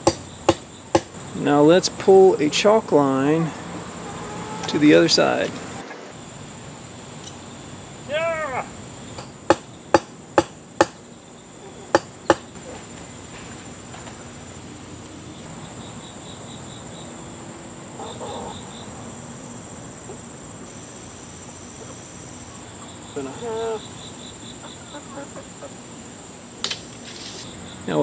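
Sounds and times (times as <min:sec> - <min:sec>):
sharp knocks: 0:00.0 - 0:01.1.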